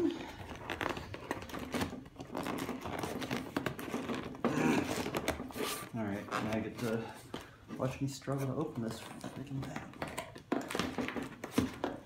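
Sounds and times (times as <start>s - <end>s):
scratching and tapping on cardboard: 9.0s - 12.0s.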